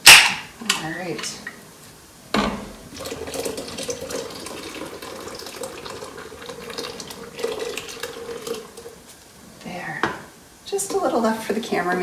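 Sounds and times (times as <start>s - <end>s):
beer pouring from can: 2.8s - 9.0s.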